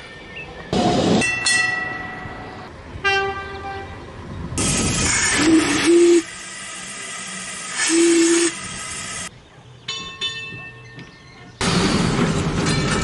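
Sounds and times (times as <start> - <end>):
hissing steam: 4.6 - 9.3
steam locomotive whistle blasts: 5.1 - 6.6, 7.3 - 8.8.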